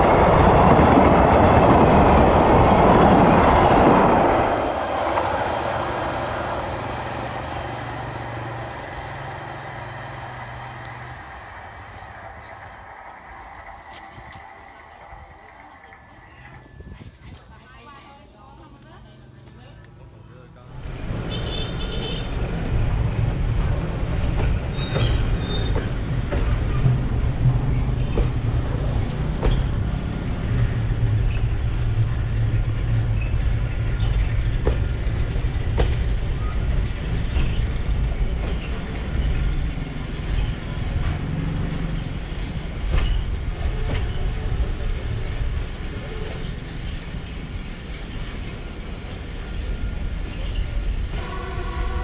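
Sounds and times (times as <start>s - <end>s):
freight train wagons rumbling: 0.0s - 19.4s, 20.6s - 52.0s
high wheel squeals: 24.7s - 26.0s.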